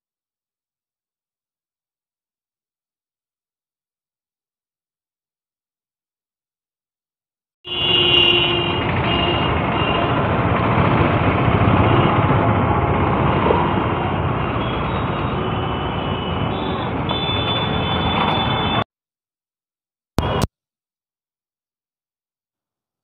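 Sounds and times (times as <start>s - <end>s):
horns beeping: 7.7s - 10.4s, 11.6s - 18.8s
street traffic din: 7.7s - 18.9s, 20.2s - 20.5s.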